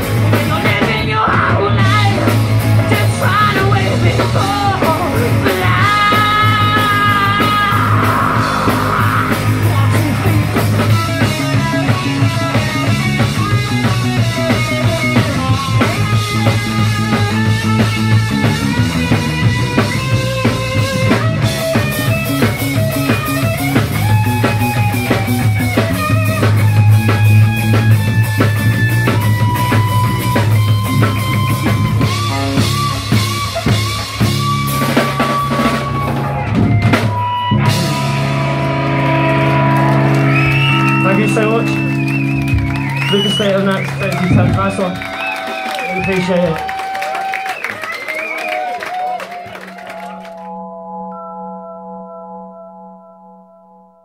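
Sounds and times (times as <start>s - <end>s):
drums: 0.0s - 50.4s
electric guitar: 0.0s - 50.7s
live rock band playing: 0.0s - 51.3s
person singing: 0.3s - 10.6s.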